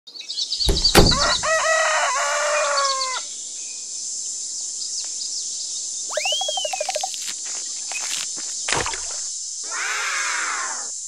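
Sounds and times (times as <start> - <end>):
low thud: 0.7 - 1.3
rooster crowing: 1.1 - 3.3
steady high hiss: 3.3 - 11.0
high bird chirps: 6.1 - 7.2.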